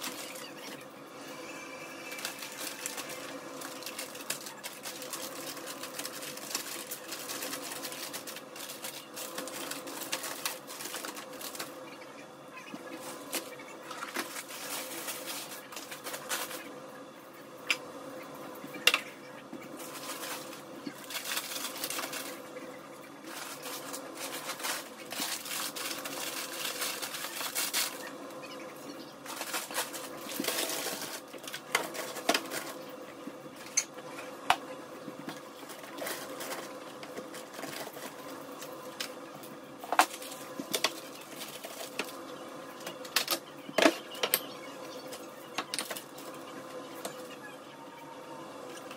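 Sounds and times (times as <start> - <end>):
plastic packaging crinkling: 0.0 - 0.8, 2.0 - 11.8, 12.8 - 16.7, 19.8 - 28.1, 29.2 - 32.9, 35.2 - 39.2, 39.8 - 46.4
faint steady hum: 0.0 - 48.9.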